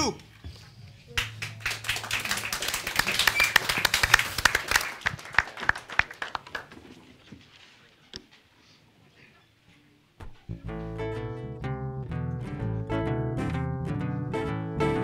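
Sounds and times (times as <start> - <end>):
audience applauding: 1.2 - 7.0.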